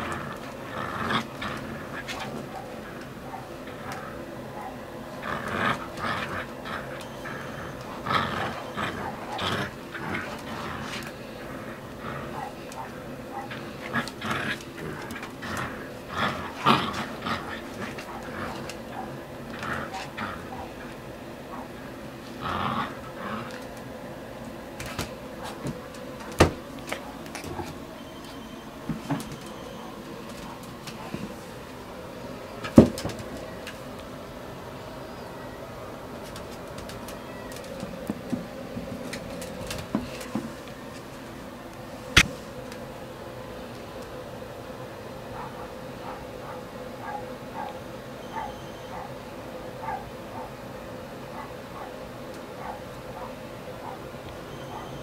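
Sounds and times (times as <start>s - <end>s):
puppy growling in play: 0.0s - 41.1s, 45.1s - 55.0s
puppy scuffling: 22.9s - 34.2s, 35.9s - 41.4s.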